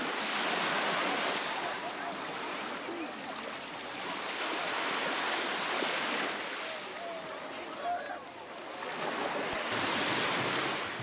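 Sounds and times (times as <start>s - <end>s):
sea surf washing onto beach: 0.0s - 11.0s
faint voices: 0.8s - 5.3s, 6.1s - 10.8s.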